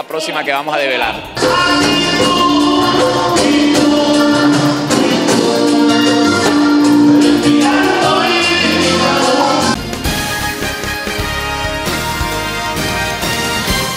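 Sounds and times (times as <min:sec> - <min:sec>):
live band playing: 0:01.1 - 0:13.9
man singing into microphone: 0:01.4 - 0:09.8.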